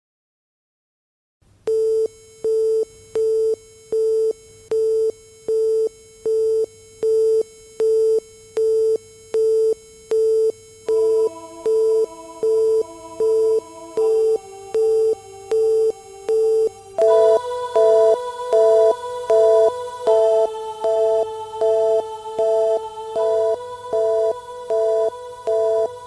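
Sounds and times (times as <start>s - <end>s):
synthesizer chord: 10.9s - 26.0s
synthesizer tone beeping: 10.9s - 26.0s.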